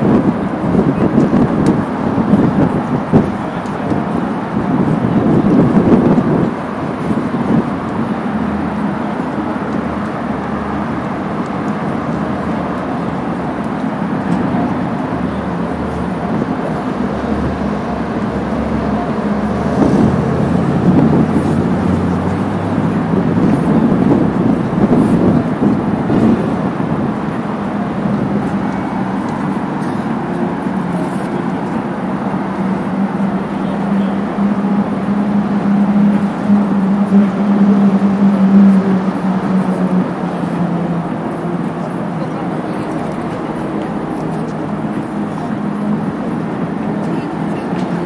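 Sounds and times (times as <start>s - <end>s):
road traffic: 0.0s - 48.0s
vehicle engine rumbling nearby: 0.0s - 48.0s.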